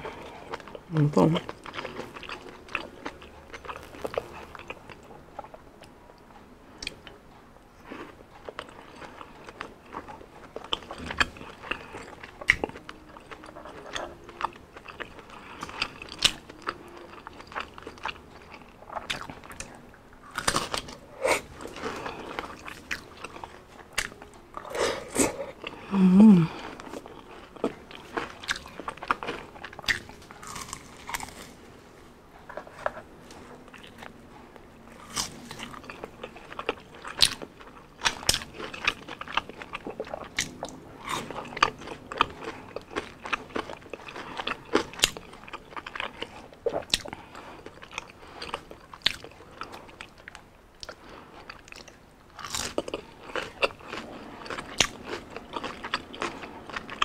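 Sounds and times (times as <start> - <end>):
crunchy chewing of fried food: 0.0 - 57.0
person humming: 24.6 - 26.8.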